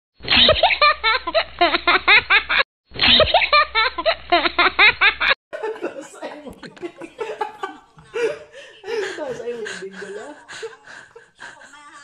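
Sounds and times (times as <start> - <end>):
high-pitched laughter: 10.5 - 12.0.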